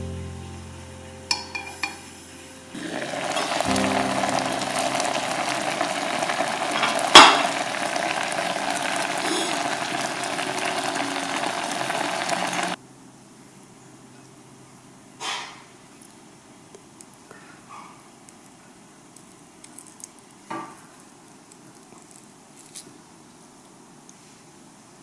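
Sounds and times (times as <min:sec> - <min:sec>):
food bubbling and sizzling in pot: 0:02.7 - 0:12.8.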